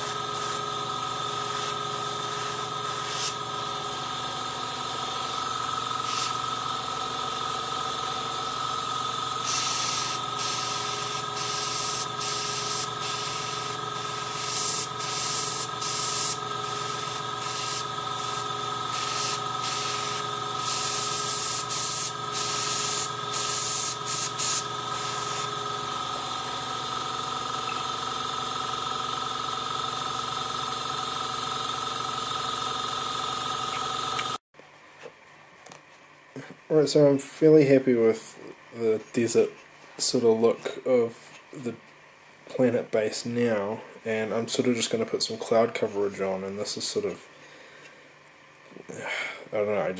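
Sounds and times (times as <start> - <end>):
airbrush spray hissing: 0.0 - 26.2
air compressor running: 0.0 - 34.4.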